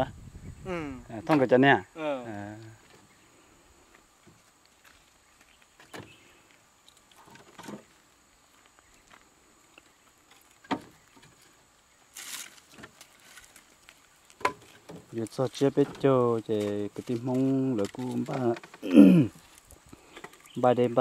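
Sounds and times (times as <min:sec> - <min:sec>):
short rustle: 0:11.3 - 0:15.5.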